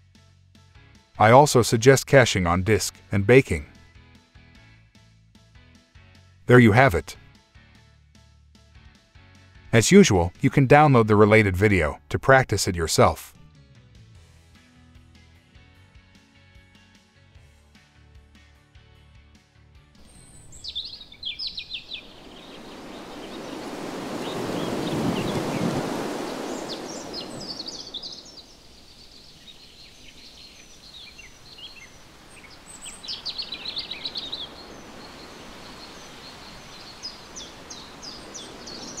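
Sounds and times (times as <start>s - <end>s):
music: 0.0s - 1.2s, 2.1s - 21.9s
birds chirping: 6.5s - 7.2s, 20.0s - 39.0s
wind gust: 20.0s - 39.0s.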